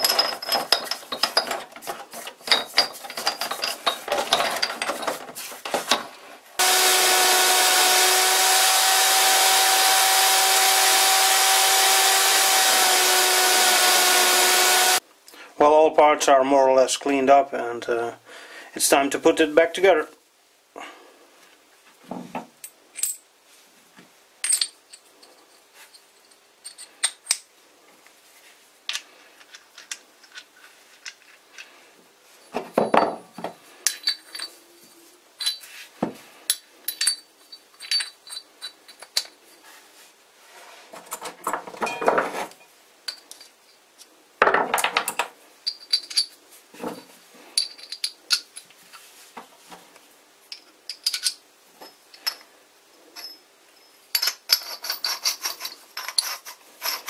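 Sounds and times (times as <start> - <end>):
metal parts clinking: 0.0 - 6.0, 28.9 - 31.7, 33.8 - 34.6, 36.5 - 39.4, 44.9 - 46.4, 47.5 - 48.7, 50.5 - 52.5, 53.1 - 57.0.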